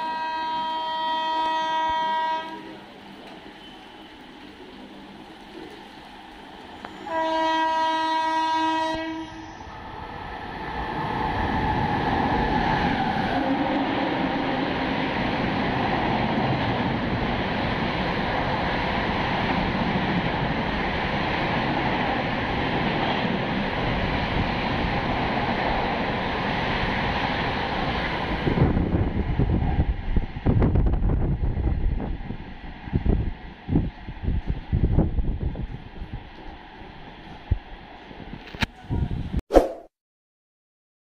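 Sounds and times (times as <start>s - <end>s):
train horn blast: 0.0s - 2.8s, 6.9s - 9.6s
train rushing past: 0.0s - 38.4s.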